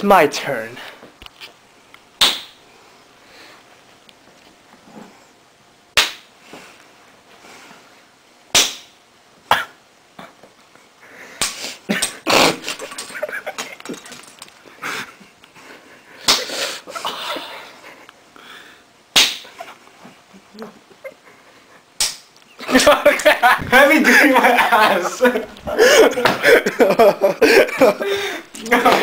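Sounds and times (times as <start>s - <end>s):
plastic spoons cracking together: 12.0s - 14.6s
small knocks and scuffling: 12.9s - 14.7s.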